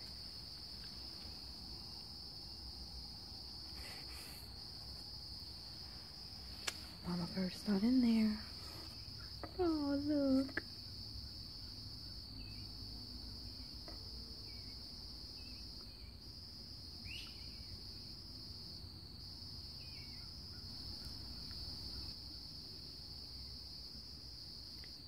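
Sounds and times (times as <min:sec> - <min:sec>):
insects trilling: 0:00.0 - 0:25.0
faint bird chirps: 0:11.6 - 0:12.7, 0:14.4 - 0:14.8, 0:17.0 - 0:17.8, 0:19.8 - 0:22.1.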